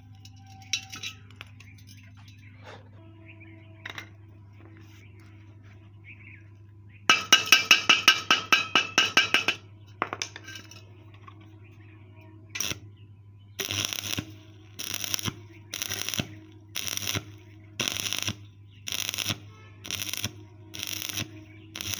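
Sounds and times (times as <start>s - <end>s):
welding arc crackling: 12.6s - 12.8s, 13.6s - 21.9s.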